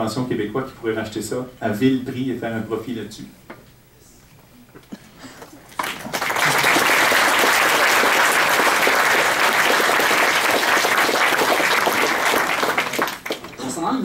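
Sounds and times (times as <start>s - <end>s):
audience applauding: 5.6s - 13.8s.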